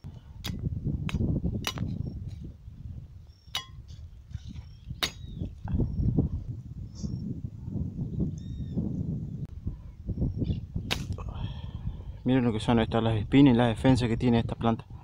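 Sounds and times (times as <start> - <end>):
wind buffeting microphone: 0.0 - 15.0
knife blade knocking branches: 0.5 - 2.0, 3.5 - 4.0, 4.9 - 5.4.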